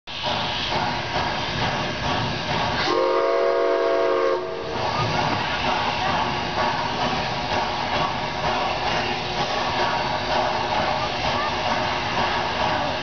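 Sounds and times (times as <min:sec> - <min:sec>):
steam locomotive whistle: 0:02.8 - 0:05.1.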